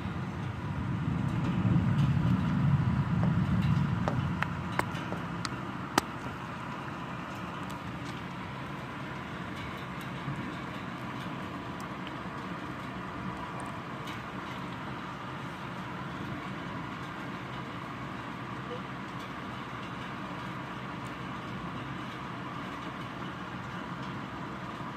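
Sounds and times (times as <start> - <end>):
thunder rumbling: 0.0 - 7.1
steady rain: 0.0 - 24.9.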